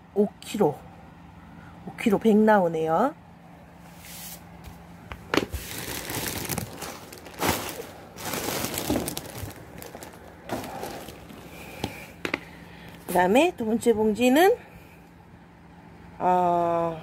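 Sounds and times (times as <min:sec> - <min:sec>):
plastic bags crinkling: 0:05.2 - 0:13.2.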